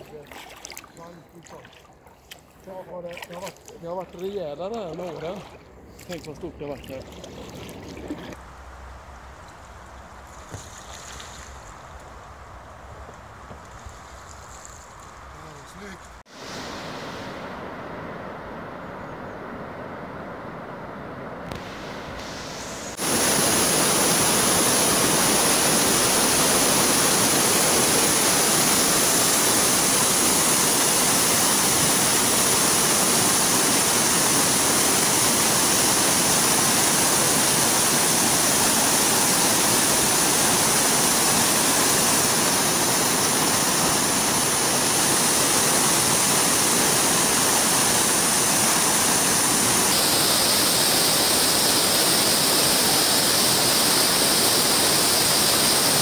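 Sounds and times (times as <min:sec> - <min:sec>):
river rapids rushing: 0:22.4 - 0:56.0.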